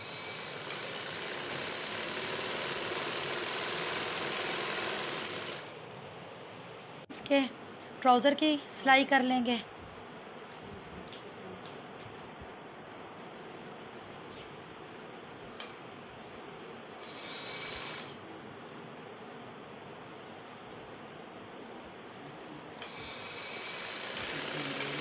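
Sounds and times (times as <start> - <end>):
sewing machine stitching: 0.0 - 5.7, 17.0 - 18.2, 22.8 - 25.0.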